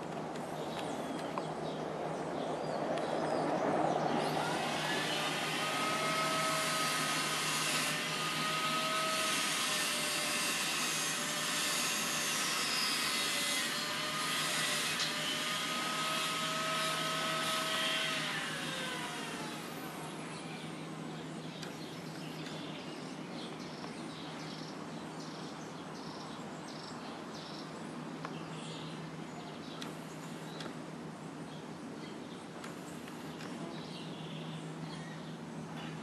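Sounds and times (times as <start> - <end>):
machine humming: 4.2 - 20.5.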